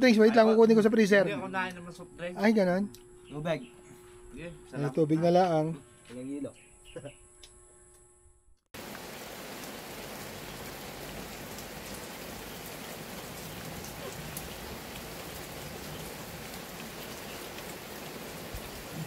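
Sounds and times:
raindrops ticking: 8.8s - 19.0s
steady rain hiss: 8.8s - 19.0s.

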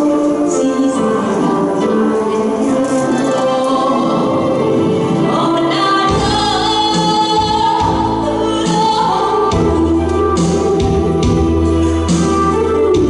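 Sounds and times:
woman singing into microphone: 0.0s - 11.4s
musical accompaniment: 0.0s - 13.0s
deep bass: 6.1s - 13.0s.

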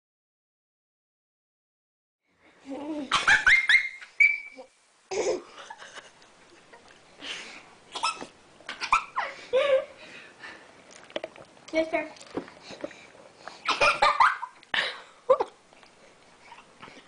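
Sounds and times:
baby squealing and laughing: 3.0s - 5.4s.

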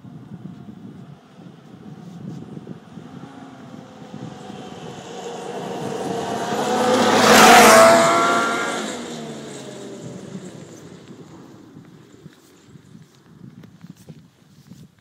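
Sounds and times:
snowmobile passing by: 1.2s - 12.8s.

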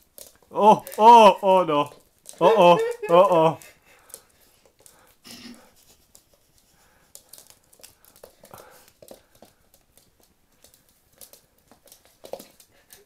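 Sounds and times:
dog claws clicking on hard floor: 0.0s - 0.5s, 5.8s - 13.0s.

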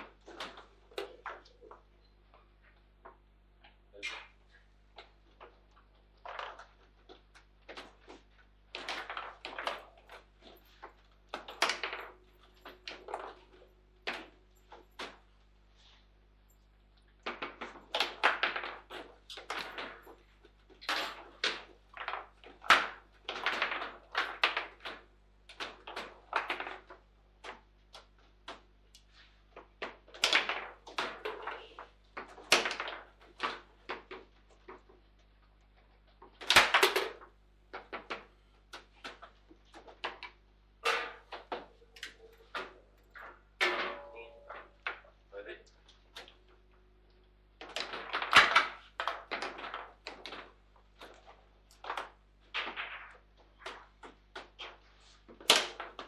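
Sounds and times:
foosball clacking against figures: 4.0s - 15.4s, 17.2s - 35.0s, 35.8s - 45.1s, 47.6s - 56.0s
loud foosball hit: 40.8s - 41.7s, 43.6s - 45.0s, 55.4s - 56.0s.

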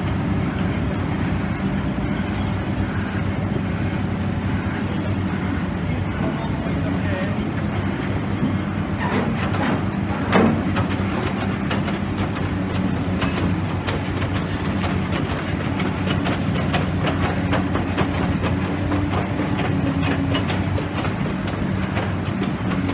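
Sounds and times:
excavator diesel engine running: 0.0s - 22.9s
metal clanks and knocks: 7.6s - 22.9s.

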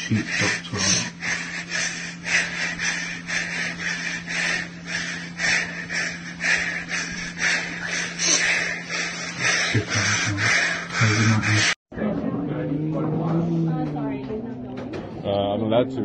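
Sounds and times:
child breathing heavily: 0.0s - 11.8s
steady low hum: 0.0s - 16.0s.

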